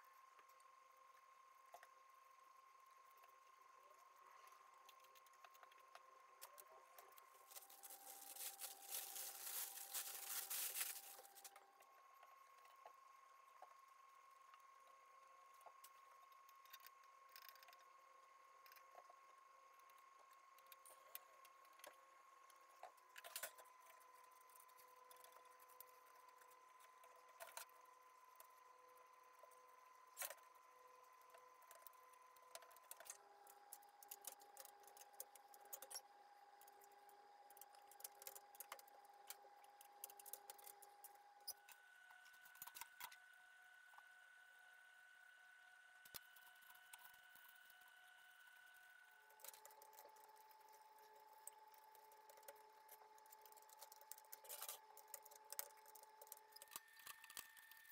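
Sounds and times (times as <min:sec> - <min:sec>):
dry wood-fibre pads rustling: 0:07.4 - 0:11.5.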